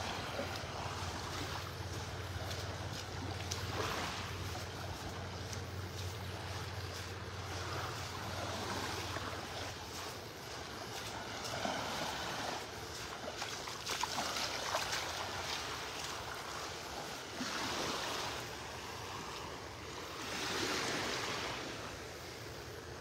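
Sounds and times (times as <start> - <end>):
light water splashes: 0.0 - 22.7
small waves lapping on shore: 0.0 - 23.0.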